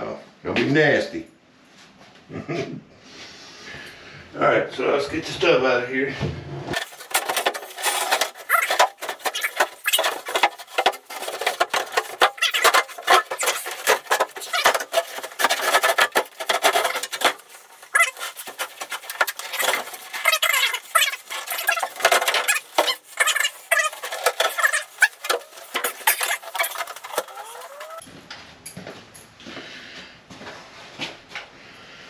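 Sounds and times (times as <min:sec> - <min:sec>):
bathtub knocking and scraping: 0:06.2 - 0:28.0.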